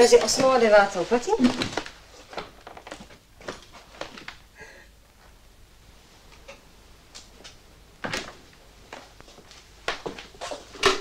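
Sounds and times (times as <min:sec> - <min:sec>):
footsteps on a hard floor: 0:08.9 - 0:10.7.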